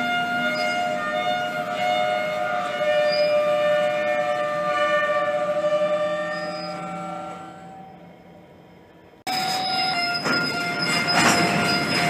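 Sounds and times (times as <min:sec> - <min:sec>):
train wheels squealing on rails: 0:00.0 - 0:01.4, 0:02.7 - 0:04.5, 0:05.2 - 0:08.4, 0:09.3 - 0:12.0.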